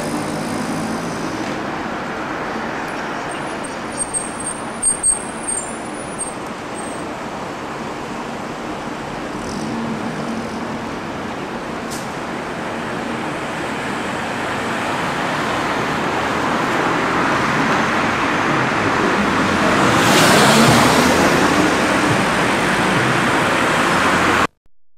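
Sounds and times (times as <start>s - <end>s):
bus engine pulling away: 0.0s - 24.5s
street traffic: 0.0s - 24.6s
car passing close: 14.2s - 24.5s.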